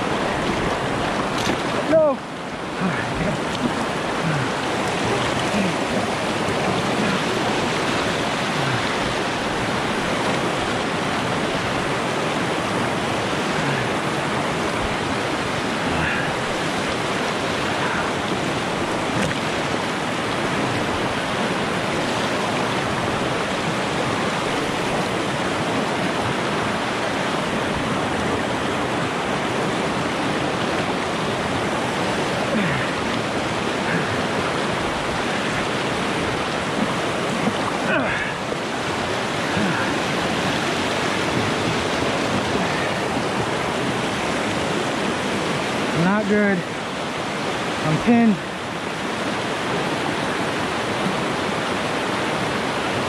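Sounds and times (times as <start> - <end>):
river water rushing: 0.0 - 53.0.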